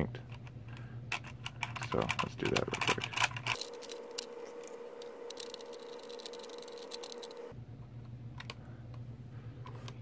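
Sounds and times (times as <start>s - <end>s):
faint steady hum: 0.0s - 10.0s
screwdriver clicks and rattles: 0.3s - 7.4s
handling plastic parts: 0.3s - 7.5s.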